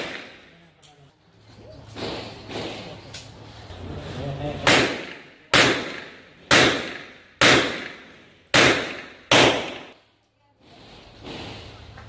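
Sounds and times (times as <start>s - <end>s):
pistol shots with echo: 0.0s - 0.6s, 4.6s - 10.0s.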